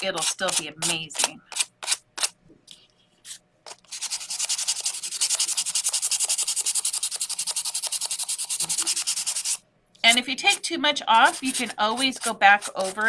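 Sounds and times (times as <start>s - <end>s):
sandpaper rasping: 3.3s - 13.0s.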